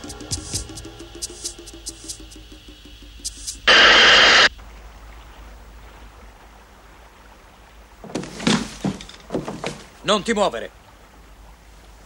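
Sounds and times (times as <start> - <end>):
tense film music ticking beat: 0.0 - 3.7
steam hissing: 0.0 - 4.5.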